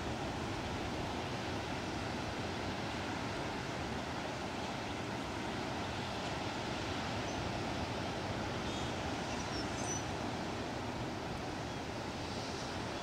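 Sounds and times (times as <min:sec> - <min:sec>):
ocean surf: 0:00.0 - 0:13.0
faint high bird chirps: 0:08.7 - 0:10.1.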